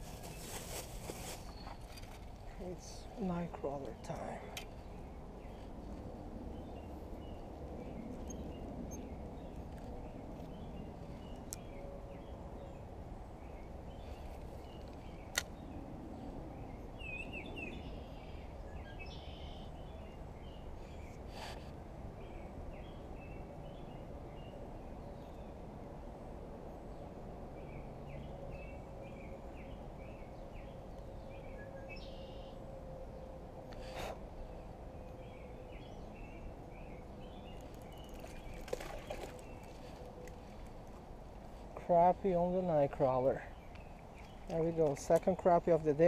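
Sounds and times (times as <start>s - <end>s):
bird chirps: 17.0s - 21.2s, 29.6s - 32.6s.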